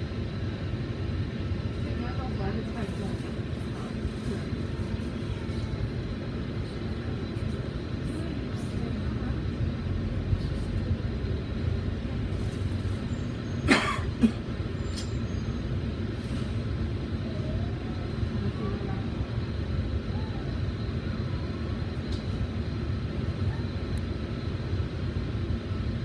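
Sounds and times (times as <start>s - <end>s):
bus diesel engine rumble: 0.0s - 26.0s.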